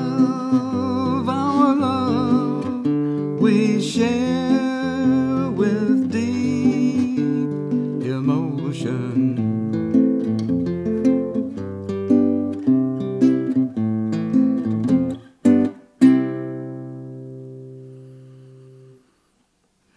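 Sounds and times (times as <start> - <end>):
man singing: 0.0 - 9.8
acoustic guitar strumming chords: 0.0 - 19.2.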